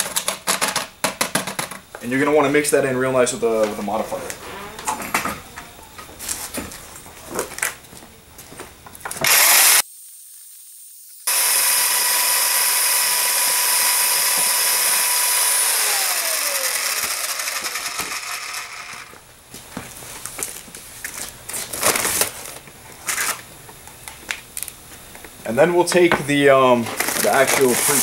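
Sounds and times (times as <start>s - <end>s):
electric drill whining: 4.4s - 5.8s, 9.2s - 9.8s, 11.2s - 19.2s.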